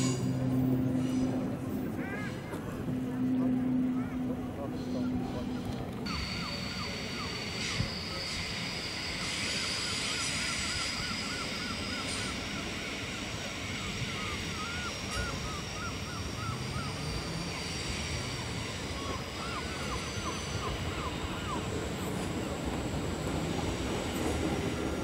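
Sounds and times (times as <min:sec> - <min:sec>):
train rumble and hum: 0:00.0 - 0:25.0.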